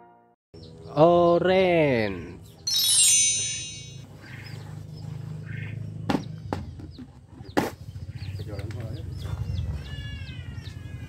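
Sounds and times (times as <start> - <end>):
twinkling chime: 2.7 - 4.1.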